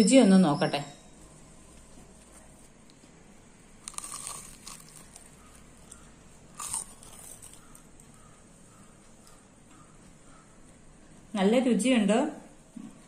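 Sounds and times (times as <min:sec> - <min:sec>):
crunching fried snack: 0:03.7 - 0:07.9.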